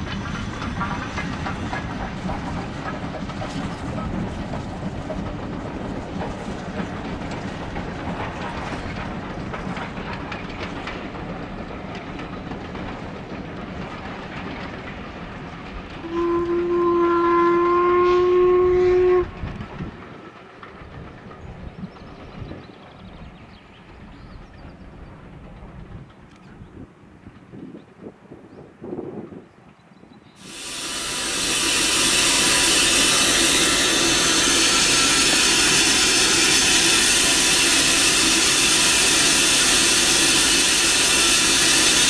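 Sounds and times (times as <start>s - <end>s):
train rumble and rail clatter: 0.0s - 42.0s
steam locomotive whistle blast: 16.0s - 19.4s, 30.4s - 42.0s.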